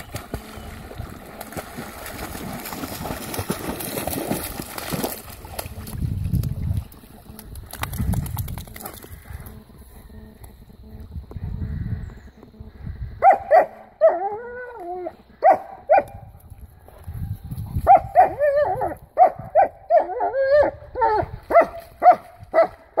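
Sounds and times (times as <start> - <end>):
dog barking: 13.2 - 14.2, 15.4 - 16.2, 17.9 - 18.5, 19.2 - 22.7.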